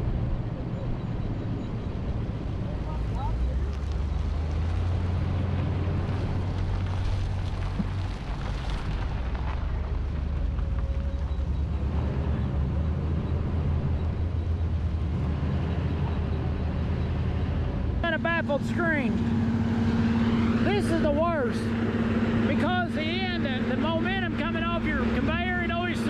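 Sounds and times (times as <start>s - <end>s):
vehicle rumble on rough road: 0.0s - 26.0s.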